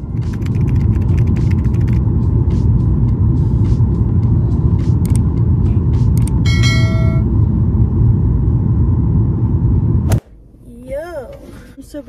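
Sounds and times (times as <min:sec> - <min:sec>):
jet engine cabin rumble: 0:04.1 - 0:12.0
bell-like chime: 0:06.4 - 0:07.3.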